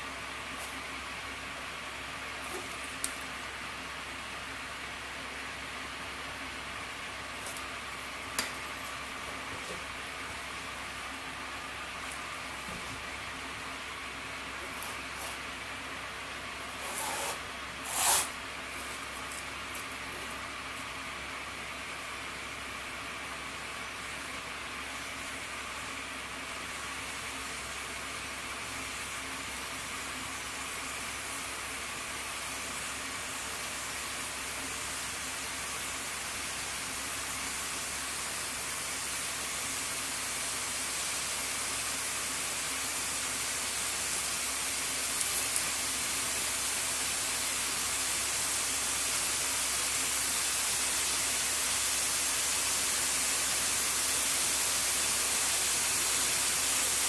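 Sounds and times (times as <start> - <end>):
steady hiss: 0.0 - 57.0.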